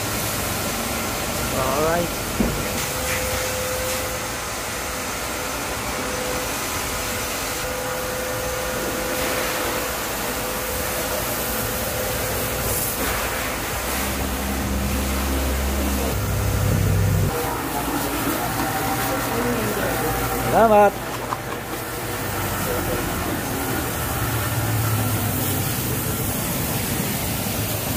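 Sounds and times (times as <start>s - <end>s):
faint machinery whine: 0.0s - 27.9s
whooshing machine noise: 0.0s - 27.9s
deep hum: 13.7s - 20.5s.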